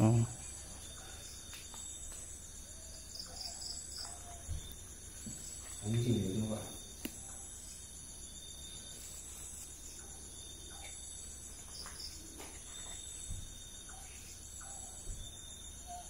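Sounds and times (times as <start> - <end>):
crickets and insects trilling: 0.0 - 16.0.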